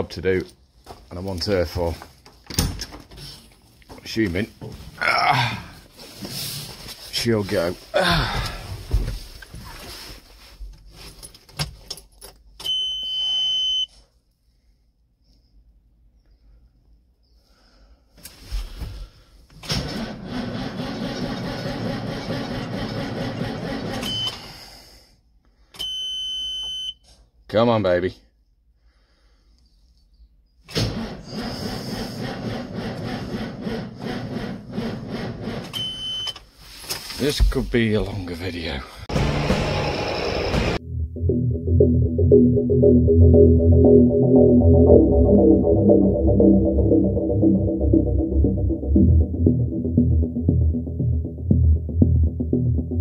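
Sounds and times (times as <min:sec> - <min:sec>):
dashboard warning beep: 0:12.7 - 0:13.9, 0:24.1 - 0:24.3, 0:25.8 - 0:27.0, 0:35.8 - 0:36.4
high warning buzzer beep: 0:12.7 - 0:13.9
starter motor cranking diesel engine: 0:19.8 - 0:24.0, 0:30.8 - 0:35.7.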